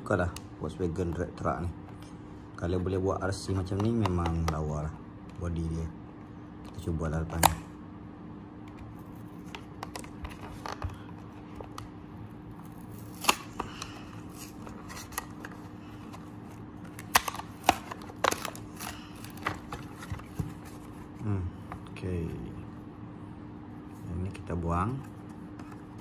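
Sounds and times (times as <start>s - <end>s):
faint steady hum: 0.0s - 26.0s
plastic blister pack crinkling: 12.6s - 20.9s.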